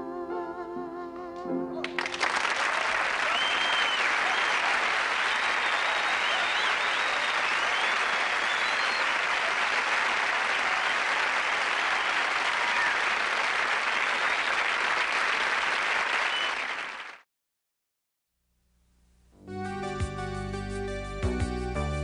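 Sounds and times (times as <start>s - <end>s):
audience applauding: 1.8s - 17.2s
whistles: 3.2s - 9.8s, 10.6s - 13.0s, 16.1s - 16.9s.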